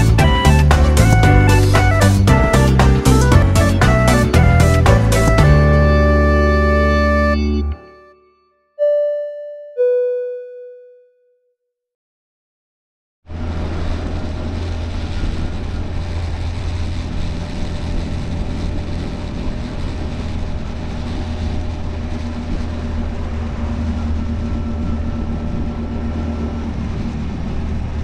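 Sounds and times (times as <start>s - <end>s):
motorcycle engine running: 0.0s - 6.1s, 13.3s - 28.0s
wind and road noise: 13.3s - 28.0s.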